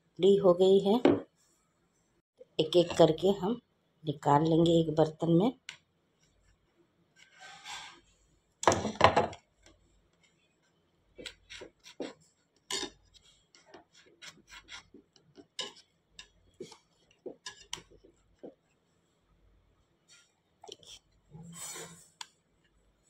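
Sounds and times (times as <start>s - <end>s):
knife scraping baking tin: 7.2s - 8.1s, 11.2s - 15.0s, 21.4s - 22.2s.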